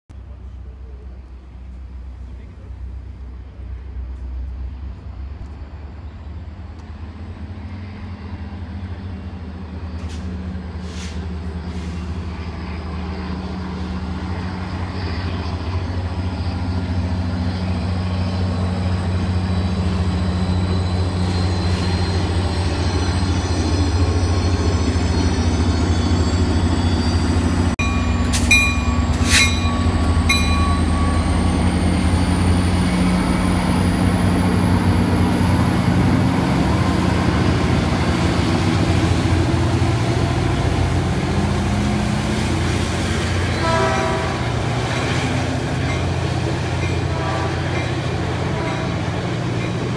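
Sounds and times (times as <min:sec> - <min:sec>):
diesel locomotive engine drone: 0:00.1 - 0:49.9
high-pitched metallic squeals: 0:14.2 - 0:34.9.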